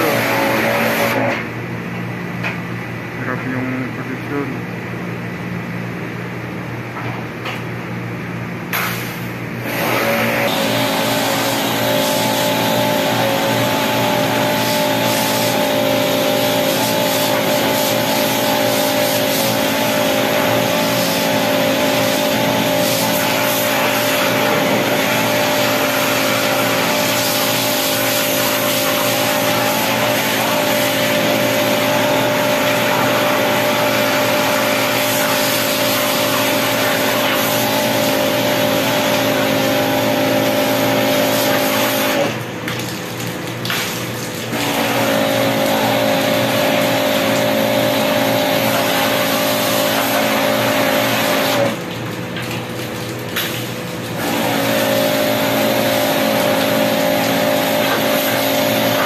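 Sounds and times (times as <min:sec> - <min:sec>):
pressure washer motor hum: 0:00.0 - 0:05.0, 0:08.7 - 0:59.0
water jet hissing: 0:10.5 - 0:42.4.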